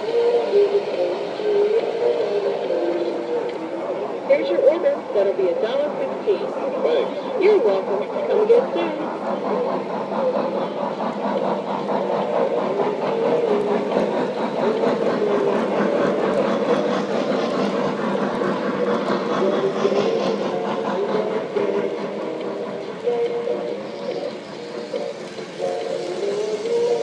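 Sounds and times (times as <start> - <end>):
train running hum: 0.0 - 27.0
model train wheels clattering: 4.5 - 27.0.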